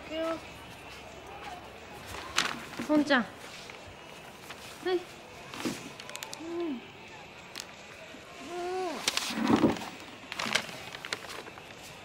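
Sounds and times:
short rustle: 9.0 - 12.0.

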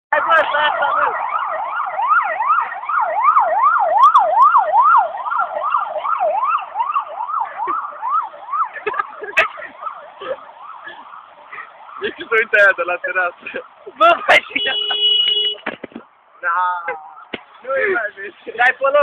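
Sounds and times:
electronic siren wailing: 0.1 - 12.0.

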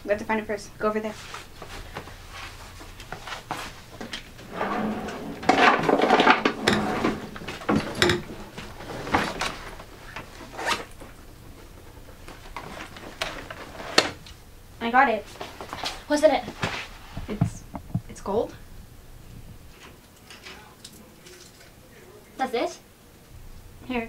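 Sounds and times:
knocks and rustling: 2.8 - 14.2
drawers opening and closing: 4.4 - 11.0.

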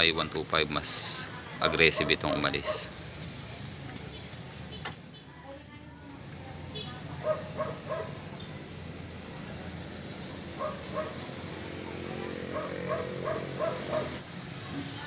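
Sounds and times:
dog barking: 1.6 - 3.0, 7.2 - 8.2, 10.6 - 11.3, 12.5 - 14.2.

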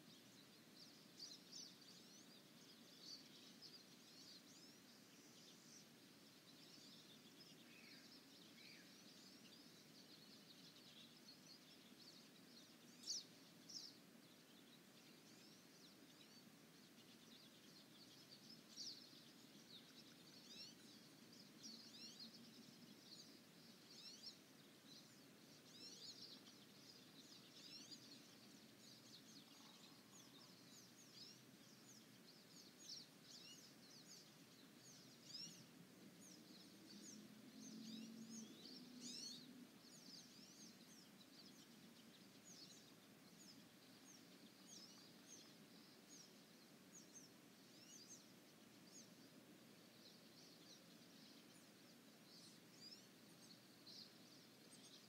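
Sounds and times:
birds chirping and trilling: 0.0 - 55.0.

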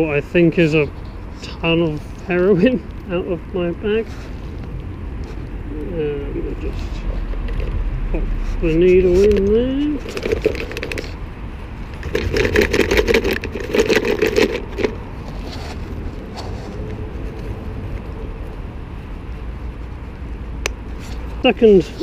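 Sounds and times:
low rumble of road traffic: 0.0 - 22.0
plastic container and bag rustling: 6.4 - 11.2, 11.8 - 17.6.

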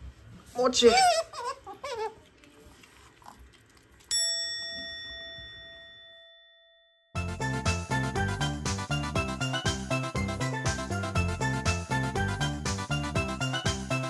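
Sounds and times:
bell-like ding: 4.1 - 7.2.

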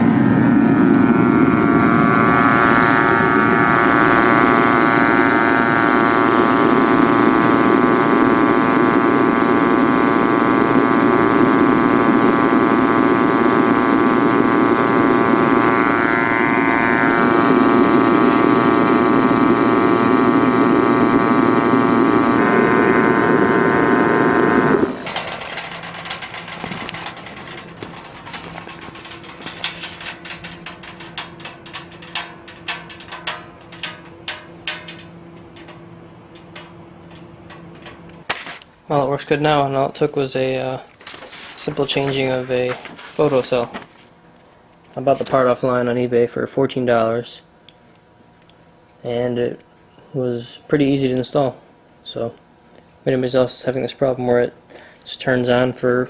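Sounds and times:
torpedo heater roaring: 0.0 - 56.0
scattered clicks: 24.8 - 38.3.

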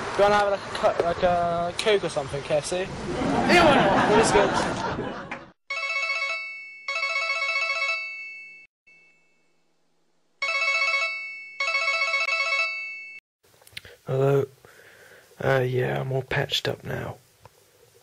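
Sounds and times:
telephone ringtone ringing: 5.7 - 9.5, 10.4 - 13.2.

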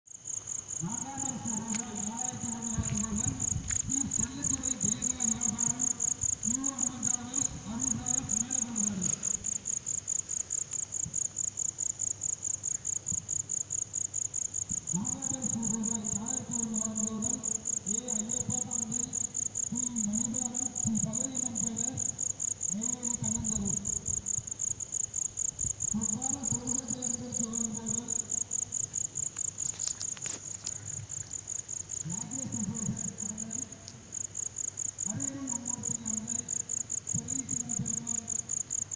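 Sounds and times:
crickets chirping: 0.1 - 38.9
frog calls: 0.7 - 10.0.

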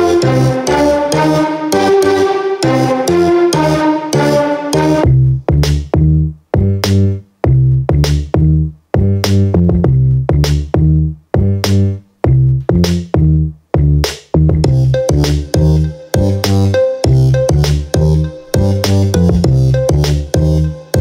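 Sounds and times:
electronic music with drum-machine beat: 0.0 - 6.0, 12.7 - 21.0.

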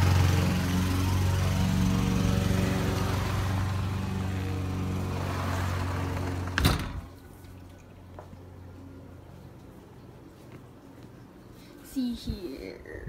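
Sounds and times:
lawn mower engine running: 0.0 - 7.2
sliding glass door shutting: 5.0 - 7.2.

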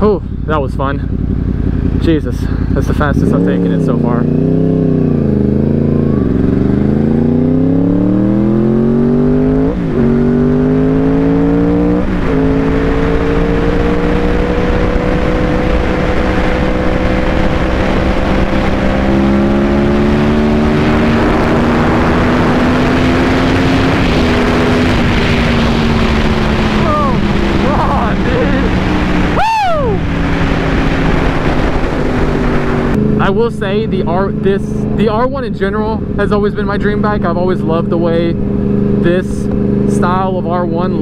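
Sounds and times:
motorcycle engine accelerating: 0.0 - 41.0
wind rush: 11.8 - 33.0.

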